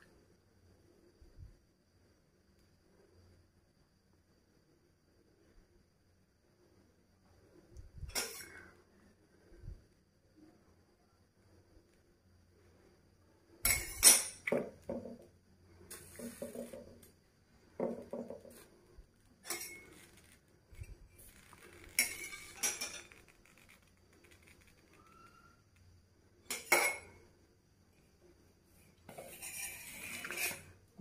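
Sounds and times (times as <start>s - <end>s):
metal pots clattering: 19.4s - 20.0s, 22.0s - 23.1s.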